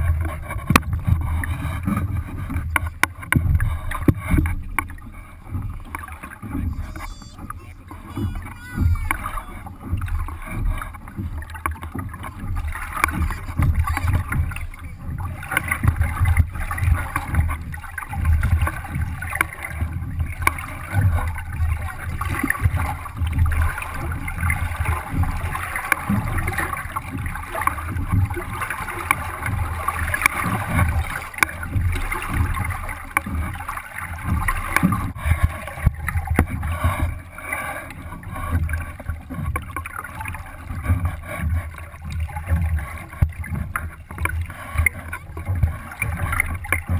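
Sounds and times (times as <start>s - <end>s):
water splashing along a hull: 0.0s - 46.9s
low rumbling: 0.9s - 32.6s.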